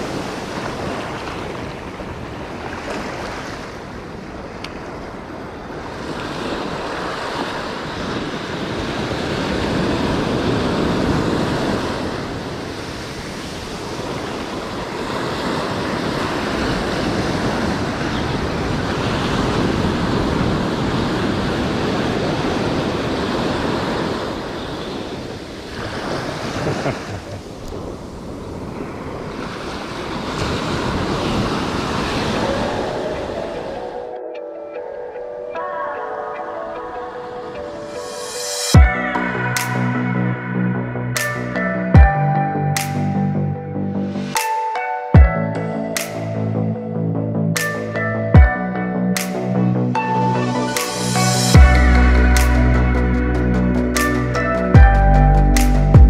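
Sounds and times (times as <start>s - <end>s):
surf breaking on beach: 0.0s - 34.2s
wind rumbling on microphone: 0.0s - 34.2s.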